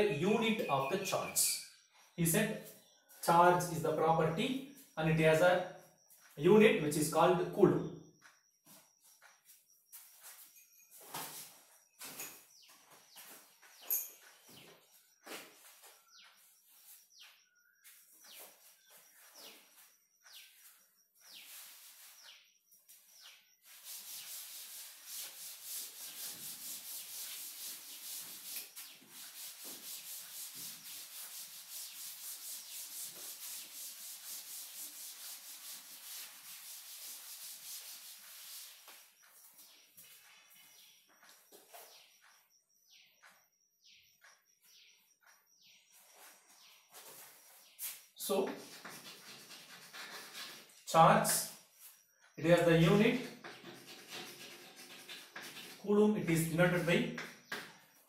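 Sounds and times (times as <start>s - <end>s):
back-and-forth rubbing: 8.7s - 41.9s, 46.0s - 57.9s
scratchy writing strokes: 23.6s - 40.2s, 47.0s - 50.8s, 52.9s - 55.8s.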